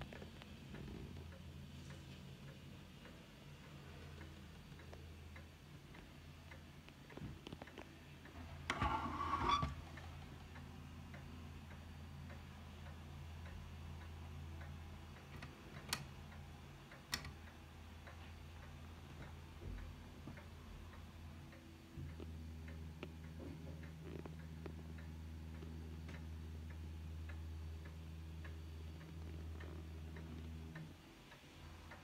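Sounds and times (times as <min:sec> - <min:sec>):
faint ticking: 0:00.0 - 0:32.0
squeaky scrape: 0:08.7 - 0:09.8.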